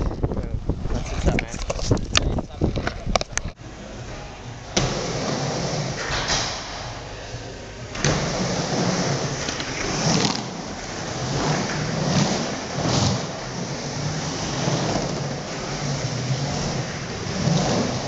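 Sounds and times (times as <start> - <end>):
skateboard wheels rolling on wood: 4.8 - 7.1, 7.9 - 18.0.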